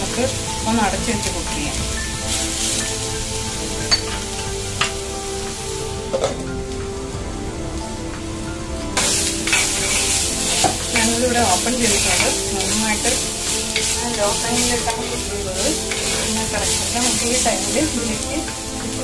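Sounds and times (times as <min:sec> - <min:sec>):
vegetables sizzling in a pot: 0:00.0 - 0:19.0
spatula stirring and scraping: 0:09.0 - 0:19.0.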